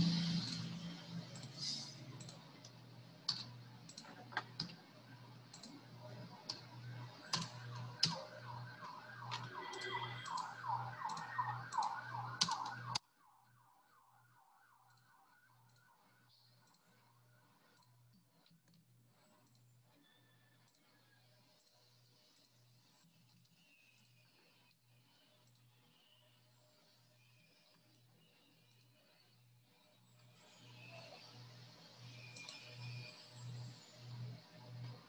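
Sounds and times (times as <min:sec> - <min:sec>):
mouse clicks: 0:01.3 - 0:04.8, 0:09.2 - 0:13.0.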